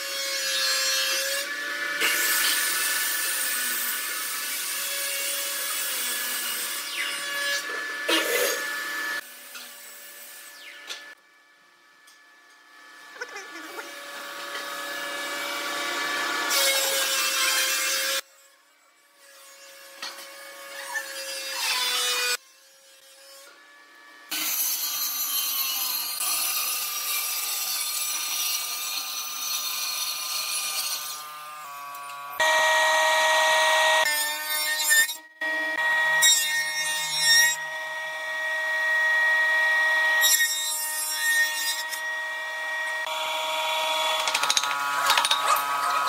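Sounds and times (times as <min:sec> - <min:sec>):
power tools whining on wood: 0:31.9 - 0:34.1, 0:41.8 - 0:46.0.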